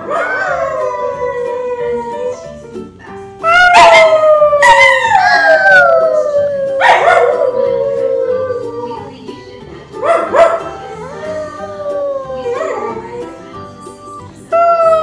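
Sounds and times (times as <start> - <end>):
toddler howling: 0.0 - 2.4, 3.6 - 9.1, 11.0 - 13.3
dog howling: 0.0 - 2.5, 3.4 - 9.2, 10.2 - 13.5, 14.5 - 15.0
background music: 0.0 - 15.0.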